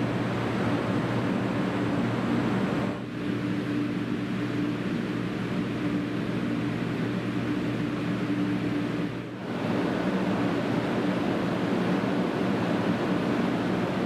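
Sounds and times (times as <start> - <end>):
high-speed train passing: 0.0 - 14.0
steady hum: 0.0 - 14.0.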